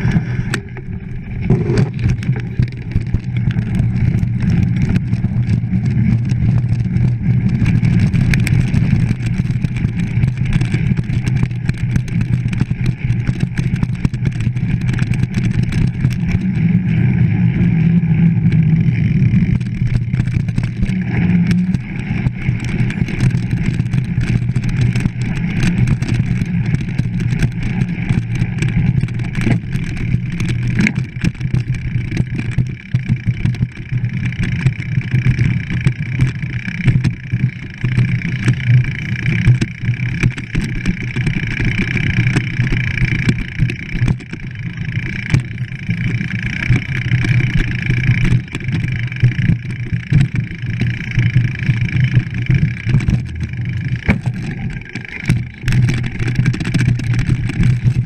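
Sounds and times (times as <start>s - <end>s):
bike rattling and knocking: 0.0s - 58.0s
bike tyre noise on dirt: 0.0s - 58.0s
wind rumble: 0.0s - 58.0s.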